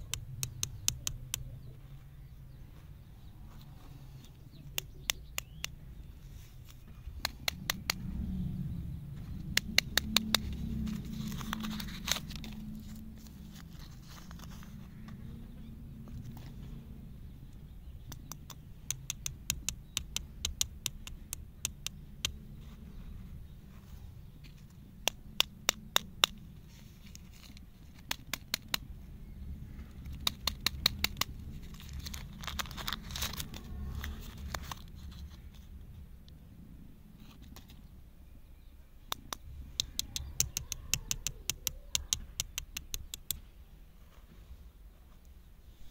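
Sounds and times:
plastic candy wrapper crinkling: 0:30.1 - 0:35.5.

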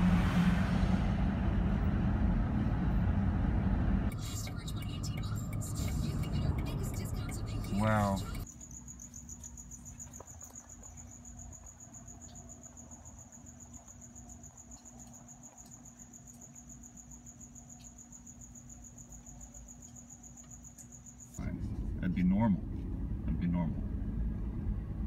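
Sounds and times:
crickets trilling: 0:04.6 - 0:21.5.

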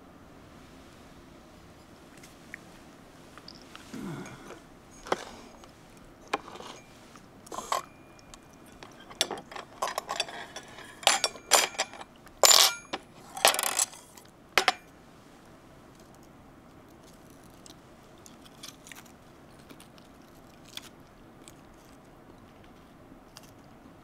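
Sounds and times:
cutlery clinking on dishes: 0:07.5 - 0:14.0, 0:14.6 - 0:14.9.

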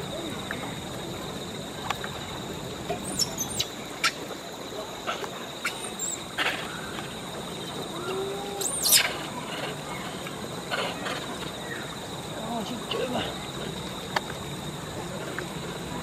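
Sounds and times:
faint steady high whine: 0:00.0 - 0:16.0
high-pitched squeaky calls: 0:08.6 - 0:09.1.

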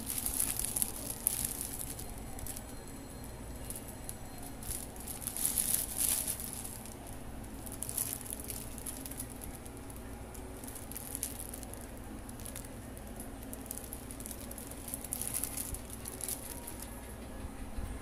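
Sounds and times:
plastic wrapping crinkling: 0:00.0 - 0:17.0
steady low hum: 0:00.0 - 0:18.0.

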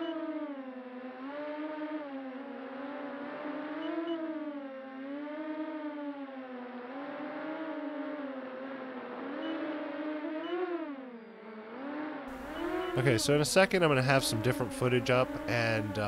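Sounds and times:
drone motors whining: 0:12.3 - 0:16.0.

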